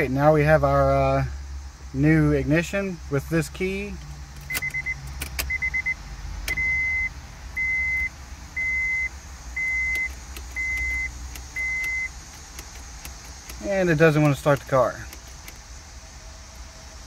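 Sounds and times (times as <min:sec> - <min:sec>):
key clicking in ignition lock: 0:04.3 - 0:05.7, 0:09.7 - 0:15.6
car warning chime beeping: 0:04.4 - 0:12.2.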